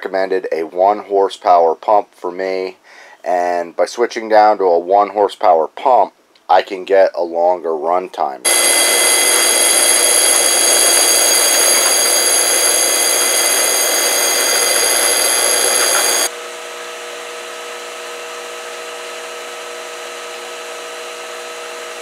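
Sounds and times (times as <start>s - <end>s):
pool pump motor whining: 8.5s - 16.3s.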